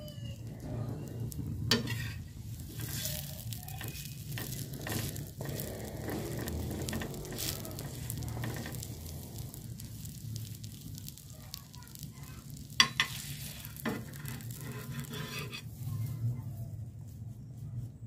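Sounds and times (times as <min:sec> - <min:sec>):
bun sizzling in oil: 0:00.0 - 0:17.4
metal spatula scraping griddle: 0:00.4 - 0:11.2, 0:12.7 - 0:16.1.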